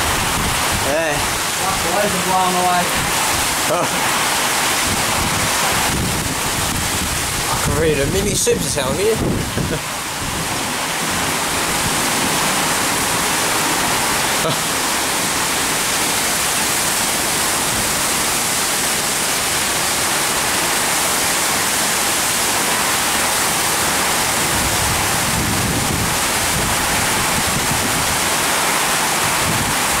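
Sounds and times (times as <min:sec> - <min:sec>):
wind gusts rumbling: 0:00.0 - 0:16.3, 0:22.6 - 0:30.0
torrential rain pouring: 0:00.0 - 0:30.0.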